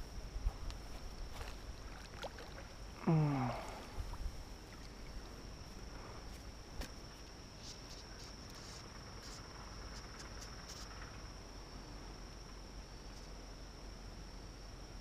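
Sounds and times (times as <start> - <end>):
cricket chirring: 0.0 - 15.0
brief grunt: 3.0 - 4.0.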